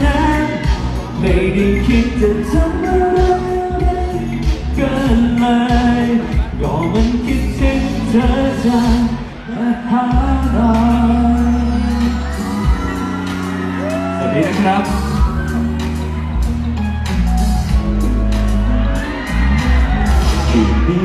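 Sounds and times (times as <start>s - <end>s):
person singing: 0.0s - 15.6s
live pop band music: 0.0s - 21.0s.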